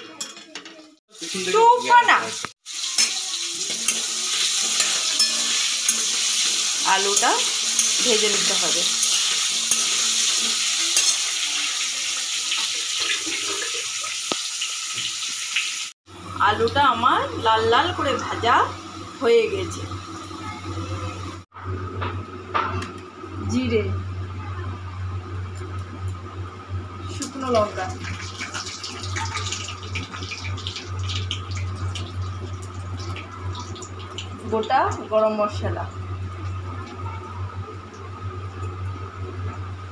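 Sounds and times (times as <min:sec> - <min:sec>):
potatoes sizzling in oil: 0:01.1 - 0:21.4, 0:27.1 - 0:37.1.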